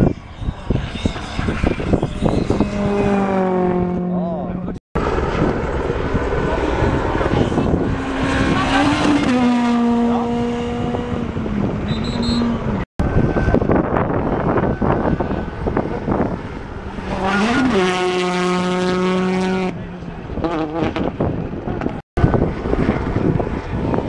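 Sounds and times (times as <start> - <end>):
rally car engines at high revs: 0.0 - 24.0
rally car passing close: 0.0 - 24.0.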